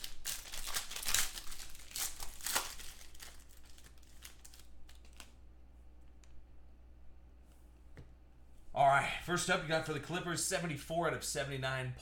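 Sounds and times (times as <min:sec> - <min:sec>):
foil wrapper crinkling: 0:00.0 - 0:05.4.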